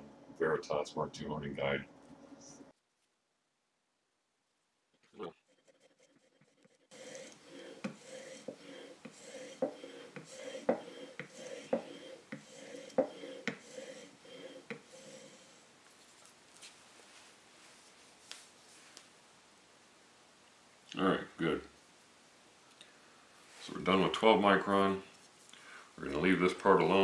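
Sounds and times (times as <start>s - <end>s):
blade rubbing on honing film: 5.4s - 15.6s.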